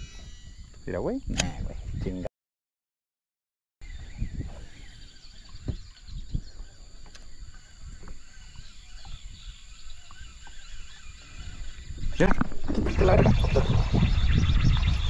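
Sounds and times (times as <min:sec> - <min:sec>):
high insect drone: 0:00.0 - 0:01.8, 0:03.9 - 0:15.0
birds calling faintly: 0:03.8 - 0:15.0.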